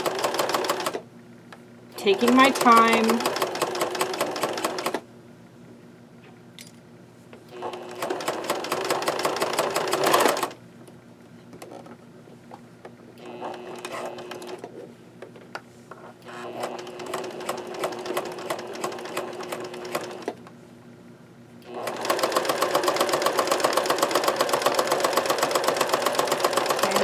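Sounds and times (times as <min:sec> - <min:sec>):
electric sewing machine stitching: 0:00.0 - 0:01.0, 0:02.0 - 0:05.0, 0:07.5 - 0:10.6, 0:13.2 - 0:14.6, 0:16.2 - 0:20.4, 0:21.6 - 0:27.0.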